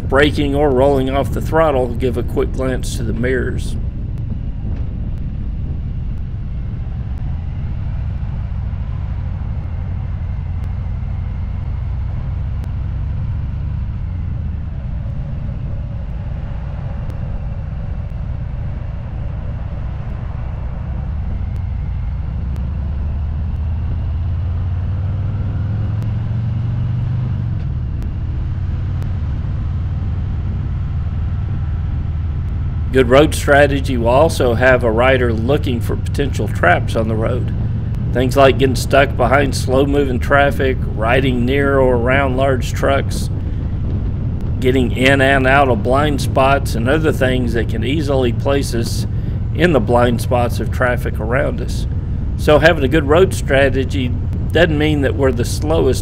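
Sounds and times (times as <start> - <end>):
motorcycle engine rumbling: 0.0 - 56.0.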